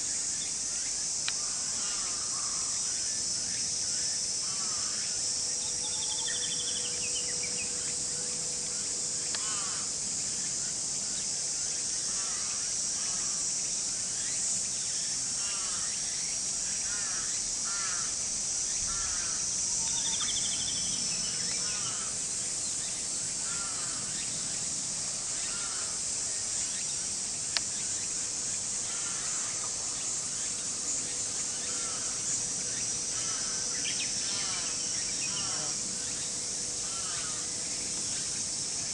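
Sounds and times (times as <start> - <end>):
insects droning: 0.0 - 38.9
crows cawing: 1.4 - 2.7, 4.4 - 5.2, 9.3 - 9.9, 12.1 - 13.4, 15.4 - 15.9, 16.9 - 18.2, 18.9 - 19.4, 21.6 - 22.1, 23.4 - 24.1, 25.5 - 26.0, 28.8 - 29.7, 31.7 - 32.2, 33.1 - 35.8, 36.8 - 37.4.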